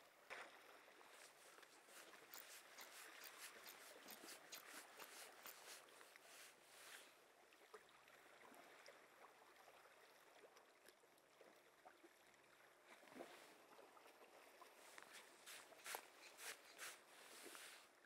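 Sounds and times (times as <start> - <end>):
faint outdoor hiss: 14.8 - 18.0.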